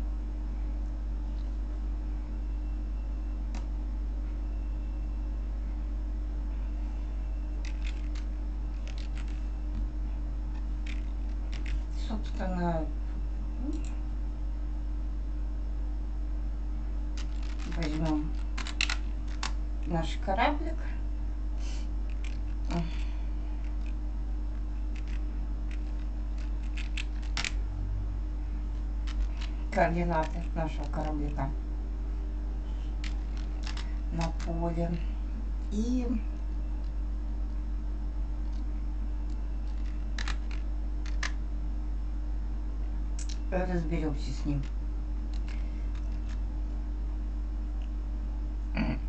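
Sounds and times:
low electrical hum: 0.0 - 49.0
keyboard keys clicking: 17.2 - 19.6, 24.9 - 27.6.

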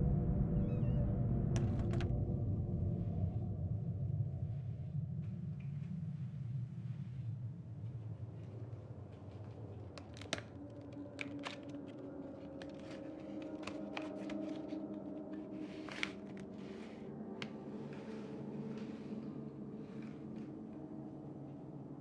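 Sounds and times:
faint low hum: 0.0 - 22.0
paper envelope crinkling: 9.4 - 18.3.

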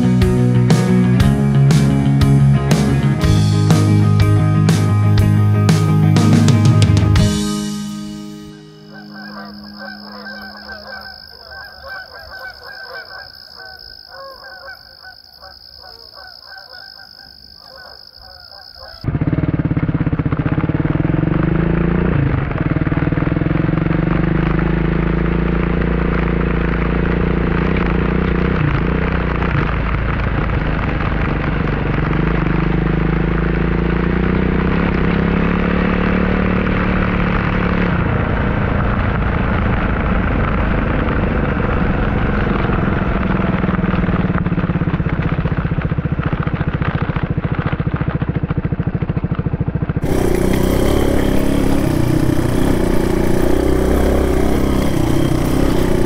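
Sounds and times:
motorcycle engine running: 0.0 - 13.8, 18.8 - 56.0.

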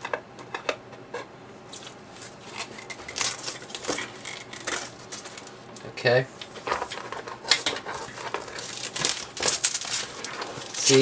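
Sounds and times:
plastic film crinkling: 1.7 - 5.6, 6.4 - 11.0
knife cutting shrink wrap: 6.8 - 11.0.

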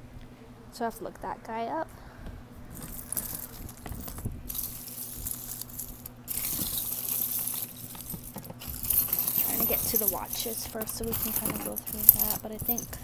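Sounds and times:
jewelry jingling and rattling: 2.7 - 13.0.

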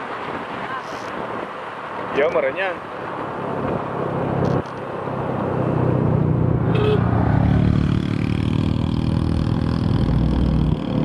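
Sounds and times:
motorcycle engine accelerating: 5.8 - 11.0.

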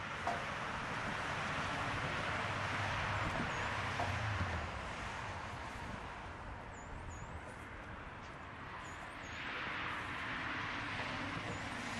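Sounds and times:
low traffic rumble: 0.0 - 11.9
vehicles passing: 0.0 - 11.9.

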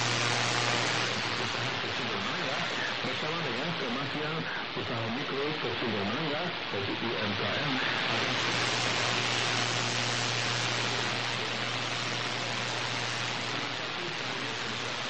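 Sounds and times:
low hum: 0.0 - 6.0
shortwave radio static: 0.0 - 15.0.

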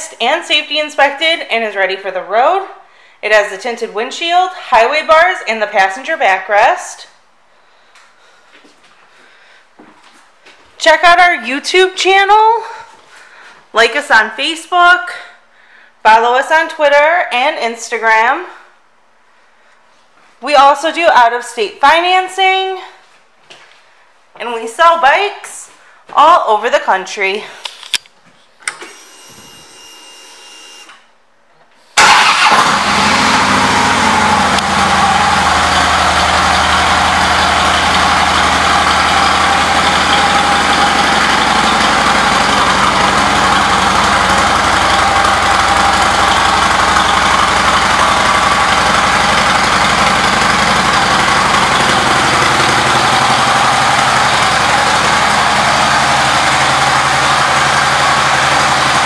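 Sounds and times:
motorcycle engine starting and idling: 32.0 - 59.0.

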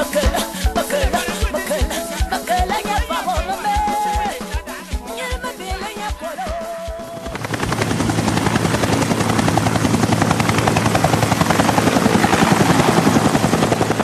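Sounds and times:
helicopter rotor chop: 6.8 - 14.0.

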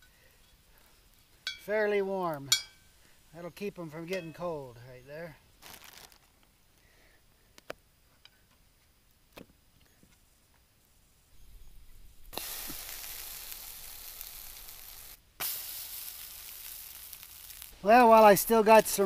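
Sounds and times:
food sizzling in a skillet: 11.4 - 19.0.

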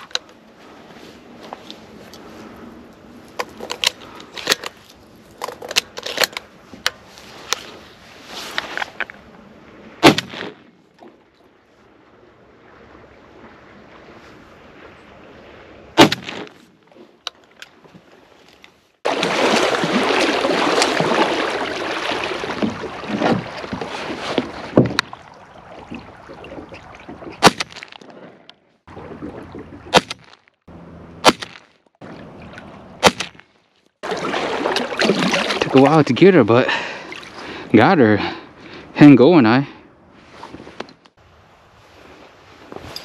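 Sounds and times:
shotgun firing: 10.0 - 10.6, 16.0 - 16.5
kayak rushing across water: 10.8 - 30.0, 34.0 - 39.5.

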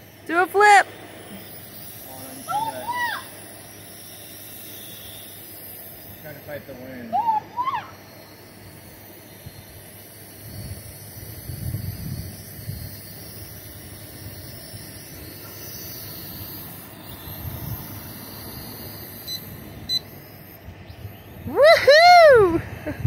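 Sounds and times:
drone propellers whirring: 0.0 - 23.0
wind gusting on microphone: 9.4 - 20.0, 20.6 - 23.0.

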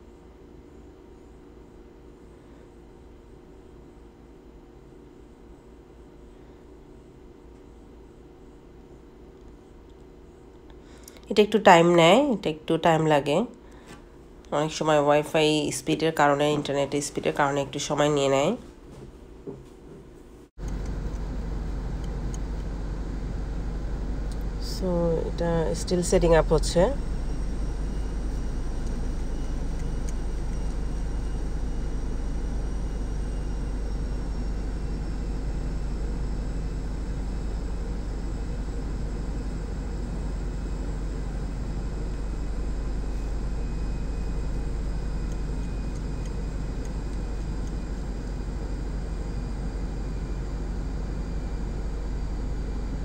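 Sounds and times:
faint high whines: 20.6 - 53.0
low rumble: 20.6 - 53.0.

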